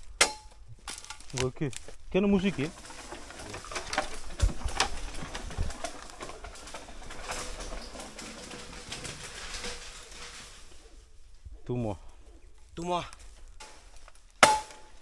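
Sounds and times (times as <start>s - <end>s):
dry leaves crackling underfoot: 0.0s - 11.4s, 12.5s - 15.0s
bamboo pole knocking: 14.4s - 14.9s.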